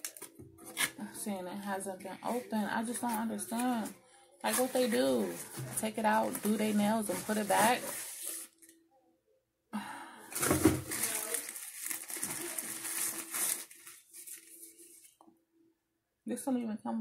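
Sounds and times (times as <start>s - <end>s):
plastic wrapping crinkling: 0.0s - 1.0s, 2.3s - 8.7s, 10.4s - 15.2s.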